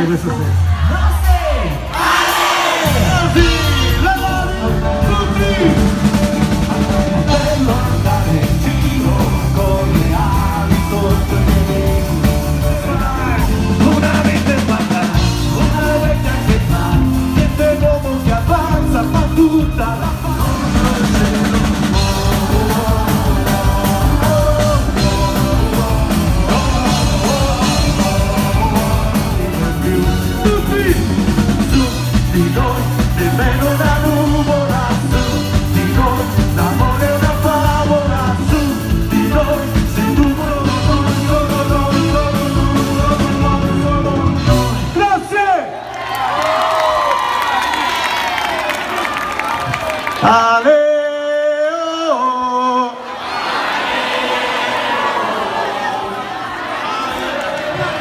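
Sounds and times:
live band playing: 0.0s - 52.0s
person singing: 0.9s - 45.0s.

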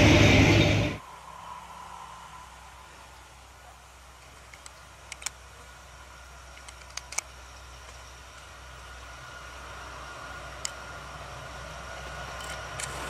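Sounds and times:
locomotive engine hum: 0.0s - 13.0s
thin steady whine: 0.0s - 13.0s
sharp clicks: 4.2s - 5.4s, 6.5s - 8.5s.

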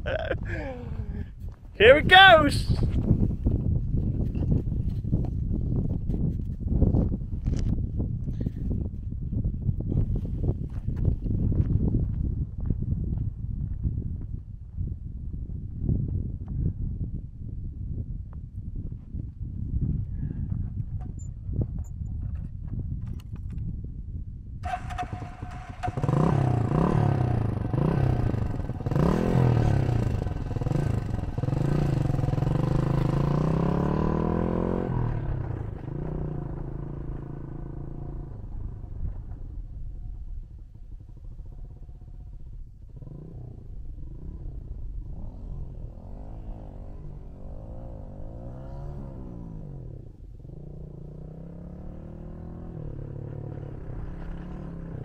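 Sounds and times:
small motorcycle engine revving: 24.6s - 38.8s, 42.9s - 55.0s.

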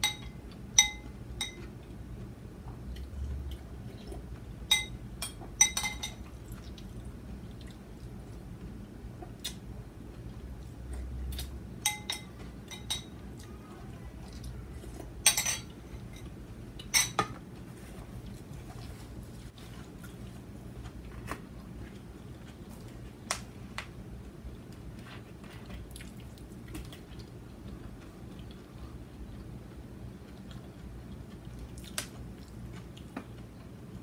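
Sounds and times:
metal spoon clinking on ceramic bowl: 0.0s - 1.7s, 4.7s - 6.2s, 11.8s - 13.1s
steady low hum: 0.0s - 34.0s.

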